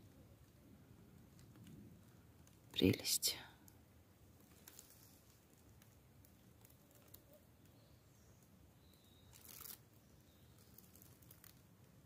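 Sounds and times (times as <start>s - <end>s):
faint rustles: 4.3s - 7.8s.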